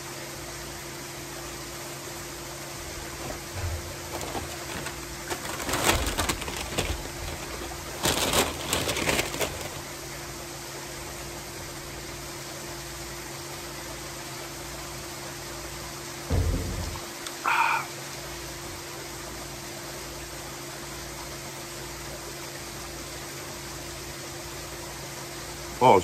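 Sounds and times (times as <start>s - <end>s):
pool waterfall hiss: 0.0s - 5.3s, 9.6s - 26.0s
crackly eating noise: 2.7s - 10.1s.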